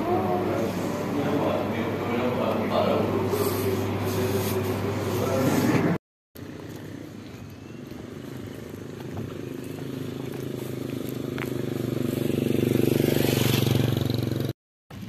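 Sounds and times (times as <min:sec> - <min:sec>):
vehicle engine pulsing: 0:06.4 - 0:15.0.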